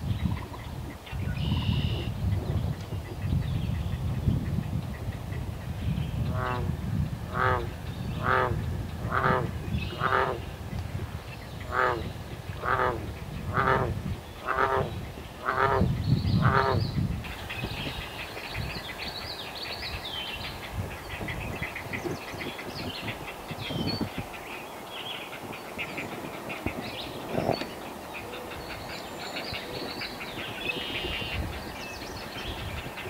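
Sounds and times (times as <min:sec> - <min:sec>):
heron nestlings croaking: 0:07.3 - 0:10.6, 0:11.4 - 0:19.2.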